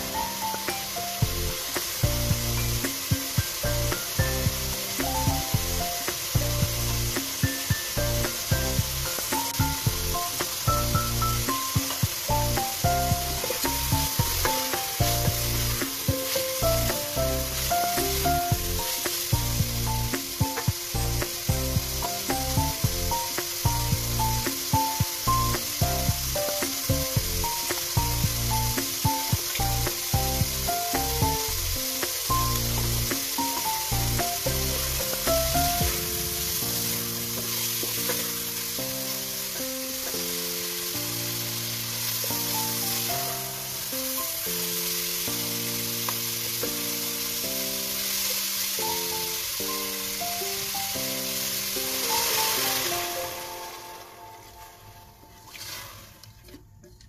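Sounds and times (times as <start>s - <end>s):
meat sizzling in oil: 0.0s - 55.1s
background music: 0.0s - 56.1s.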